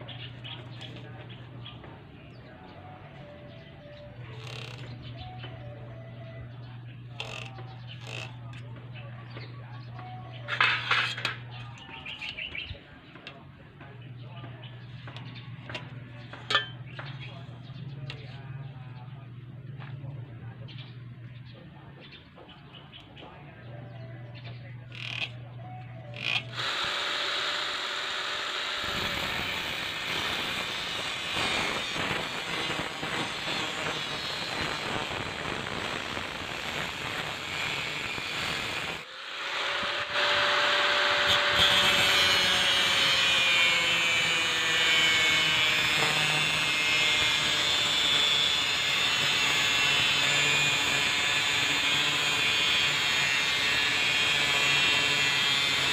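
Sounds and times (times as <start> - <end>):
angle grinder cutting metal: 4.3 - 5.4, 7.1 - 8.6, 10.4 - 12.4, 24.9 - 25.4, 26.0 - 55.9.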